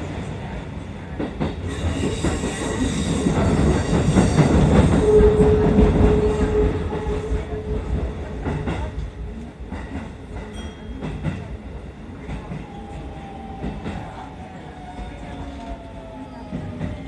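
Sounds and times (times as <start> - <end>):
train rumble: 0.0 - 17.0
train wheel squeal: 1.6 - 7.6.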